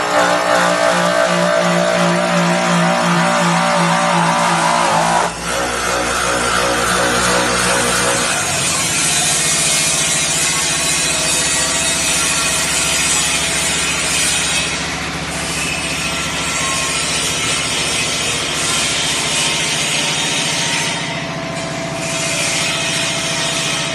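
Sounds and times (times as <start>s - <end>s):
polishing wheel rasping on metal: 0.0s - 9.8s.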